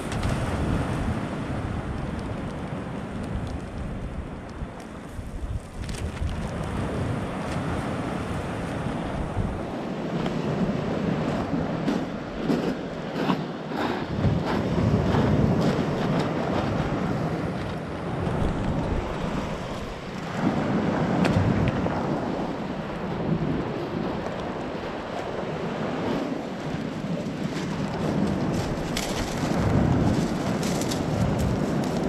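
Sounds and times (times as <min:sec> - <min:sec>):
sea waves washing onto shore: 0:00.0 - 0:32.0
wind buffeting microphone: 0:00.0 - 0:32.0.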